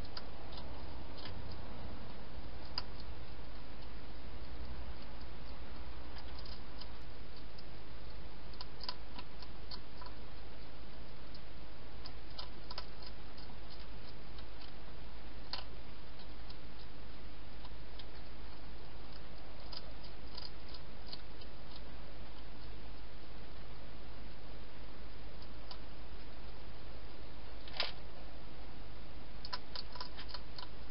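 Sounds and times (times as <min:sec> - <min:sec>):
hedgehog chewing crunchily: 0:00.0 - 0:11.4, 0:12.0 - 0:23.1, 0:29.4 - 0:30.9
camera hiss and hum: 0:00.0 - 0:30.9.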